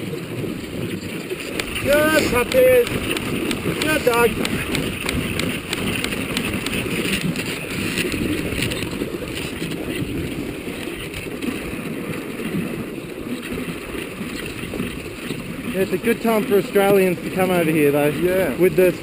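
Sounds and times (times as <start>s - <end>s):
sled runners sliding over snow: 0.0s - 19.0s.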